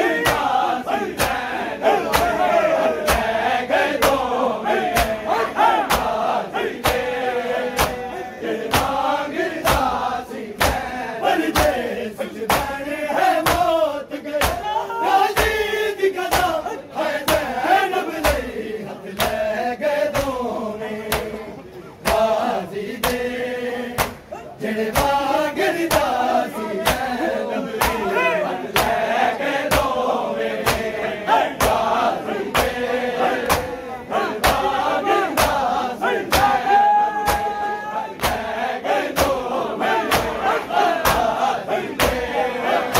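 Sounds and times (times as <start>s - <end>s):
men chanting: 0.0s - 42.9s
hands slapping chests: 0.2s - 0.6s, 1.2s - 1.4s, 2.1s - 2.4s, 3.0s - 3.3s, 4.0s - 6.2s, 6.8s - 8.0s, 8.7s - 9.0s, 9.6s - 10.0s, 10.6s - 10.9s, 11.5s - 11.8s, 12.5s - 12.8s, 13.4s - 13.8s, 14.4s - 14.6s, 16.3s - 16.6s, 18.2s - 18.5s, 21.1s - 21.4s, 22.0s - 22.3s, 23.0s - 23.2s, 24.0s - 24.3s, 24.9s - 26.2s, 26.8s - 27.2s, 27.8s - 28.1s, 28.7s - 29.0s, 29.7s - 30.0s, 30.6s - 30.9s, 31.6s - 31.9s, 33.4s - 33.7s, 34.4s - 34.7s, 35.3s - 35.7s, 36.3s - 36.6s, 37.2s - 37.6s, 38.2s - 38.5s, 40.0s - 40.4s, 41.0s - 41.3s, 42.0s - 42.2s.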